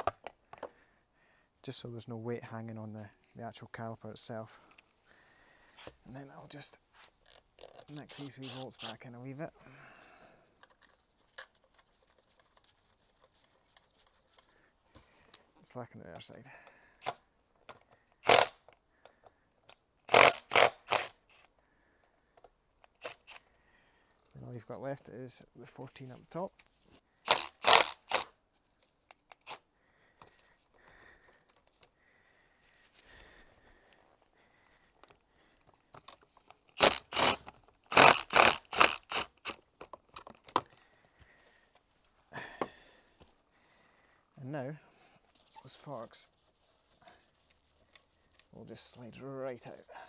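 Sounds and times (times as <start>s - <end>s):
ratchet wrench bursts: 7.9s - 9.0s, 18.2s - 18.6s, 20.1s - 21.5s, 22.8s - 23.4s, 27.2s - 28.3s, 36.8s - 39.6s.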